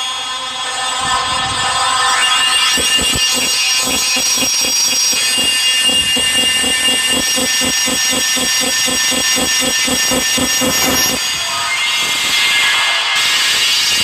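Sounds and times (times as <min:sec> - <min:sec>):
harsh cluster of synthesized piano notes: 0:02.2 - 0:11.3
fast even pulse: 0:02.7 - 0:11.3.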